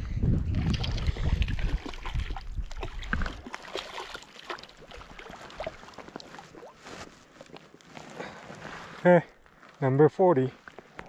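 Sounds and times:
wind rumble on microphone: 0.0s - 3.5s
water splashing and lapping: 0.4s - 9.8s, 10.6s - 11.0s.

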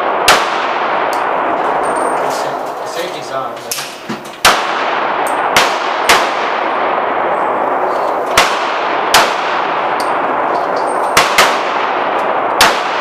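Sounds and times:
pistol shots echoing indoors: 0.0s - 2.8s, 3.8s - 13.0s
light metal clinks: 1.7s - 2.6s.

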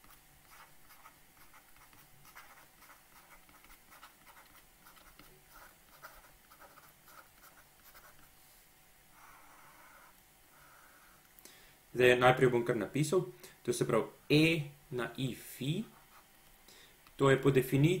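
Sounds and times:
stylus scratching tablet screen: 0.0s - 8.3s, 9.2s - 11.2s, 15.8s - 16.3s.

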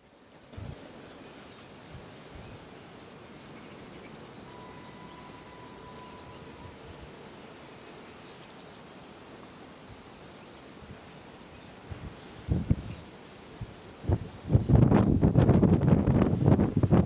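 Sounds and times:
faint outdoor hush: 0.0s - 16.9s
distant steam locomotive whistle: 4.4s - 7.4s.

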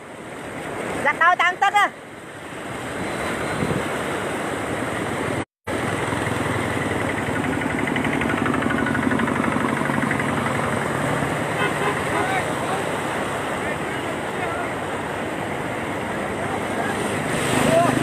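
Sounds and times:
floodwater rushing: 0.0s - 18.0s
engine humming: 5.7s - 18.0s.

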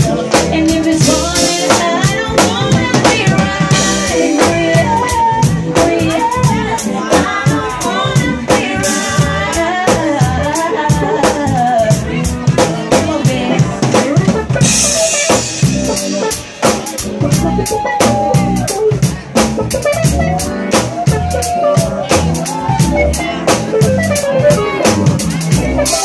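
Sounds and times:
live band playing soul groove: 0.0s - 26.0s
timbales and congas: 0.0s - 26.0s.

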